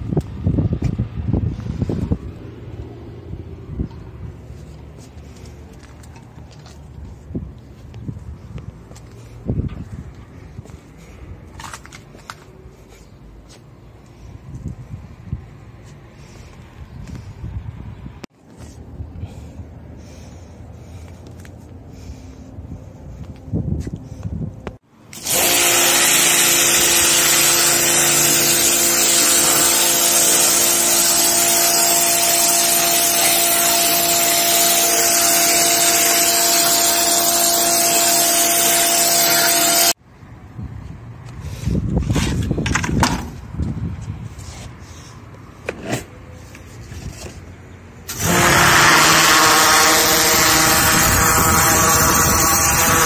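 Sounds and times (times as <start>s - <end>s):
pressure washer spraying: 25.1s - 40.0s, 48.1s - 53.0s.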